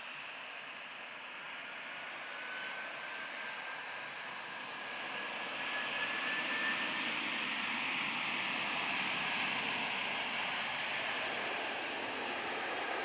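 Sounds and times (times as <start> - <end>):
jet engine whine: 0.0 - 13.0
jet airliner approaching: 4.5 - 13.0.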